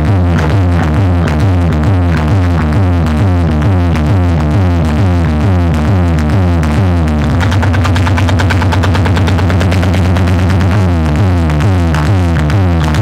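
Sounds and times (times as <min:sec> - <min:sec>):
loud electronic dance music: 0:07.3 - 0:12.6.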